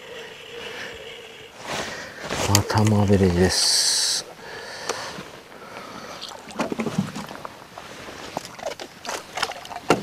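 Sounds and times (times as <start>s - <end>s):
clicks and knocks in a boat: 6.4s - 7.6s, 8.3s - 10.0s
fish splashing: 8.0s - 10.0s.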